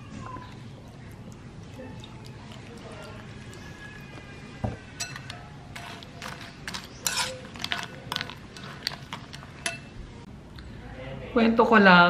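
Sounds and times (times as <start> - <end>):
metal spoon clinking in ceramic bowl: 5.0 - 10.0.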